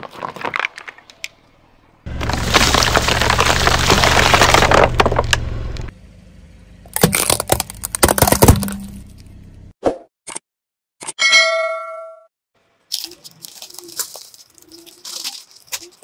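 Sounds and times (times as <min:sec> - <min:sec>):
plastic bottles crunching: 0:00.0 - 0:01.1, 0:02.1 - 0:05.4, 0:06.9 - 0:08.9, 0:12.9 - 0:16.0
plastic jars cracking: 0:02.1 - 0:05.4, 0:06.9 - 0:08.9, 0:12.9 - 0:16.0.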